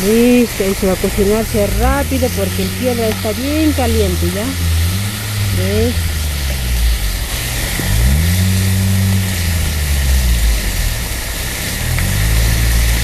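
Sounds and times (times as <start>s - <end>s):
motor engine running: 0.0s - 13.0s.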